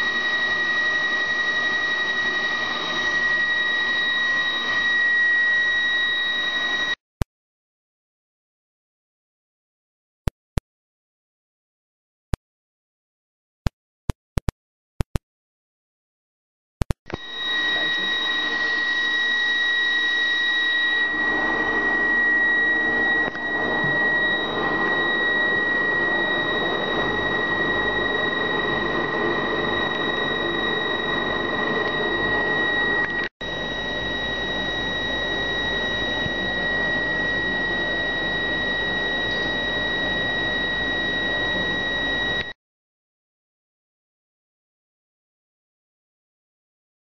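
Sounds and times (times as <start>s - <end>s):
fainter higher whine: 0.0s - 7.0s, 16.8s - 42.6s
high-pitched whine: 0.0s - 7.0s, 17.1s - 42.6s
blower fan machine noise: 17.2s - 42.5s.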